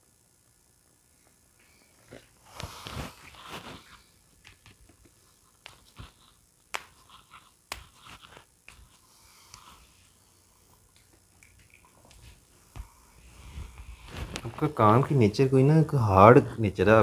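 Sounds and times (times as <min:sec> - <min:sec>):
cloth rustling on couch: 0:02.0 - 0:10.2, 0:12.0 - 0:15.0.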